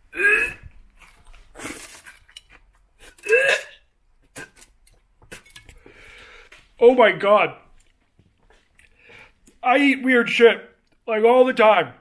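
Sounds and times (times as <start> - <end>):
man gagging and retching: 0.1 - 0.8, 3.0 - 4.7.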